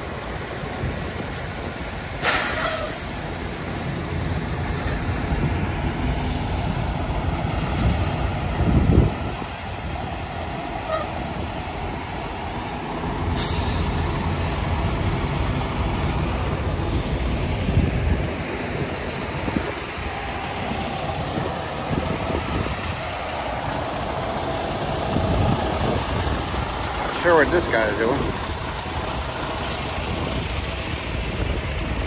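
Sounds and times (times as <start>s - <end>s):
diesel trucks rumbling: 0.0s - 32.0s
air hiss: 2.0s - 3.4s, 13.3s - 14.6s.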